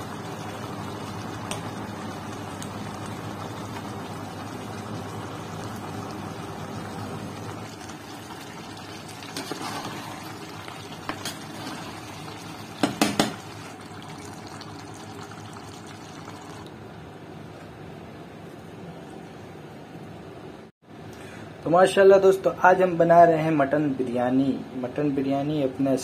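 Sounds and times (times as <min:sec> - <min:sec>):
curry simmering in a pot: 0:00.0 - 0:16.8
metal spoon stirring and scraping: 0:09.3 - 0:10.3
spoon knocking on pot: 0:12.8 - 0:13.4.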